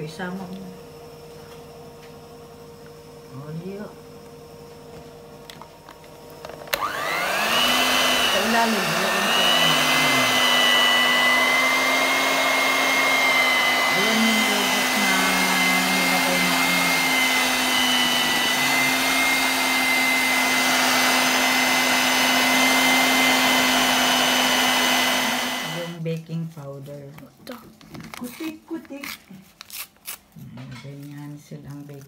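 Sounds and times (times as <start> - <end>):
electric hand mixer whirring: 6.4 - 26.0.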